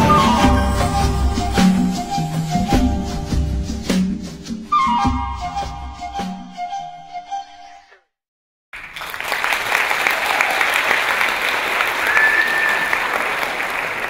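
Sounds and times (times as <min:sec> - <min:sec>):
high whistle: 0:00.0 - 0:03.3, 0:12.0 - 0:13.2
flute-led dance music: 0:00.0 - 0:08.1
audience applause: 0:08.8 - 0:14.0.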